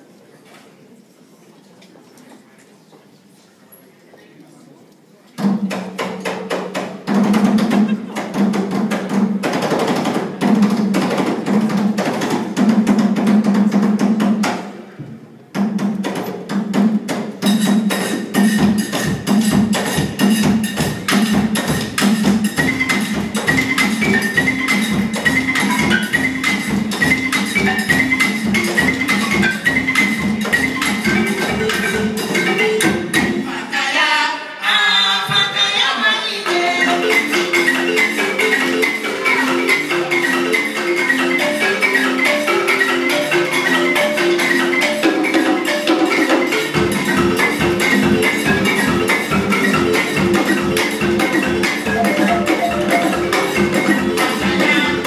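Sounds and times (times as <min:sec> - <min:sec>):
drums: 0:05.3 - 0:33.8, 0:36.4 - 0:55.0
balafons struck with mallets: 0:15.6 - 0:33.5, 0:36.6 - 0:55.0
higher melodic line: 0:46.6 - 0:55.0.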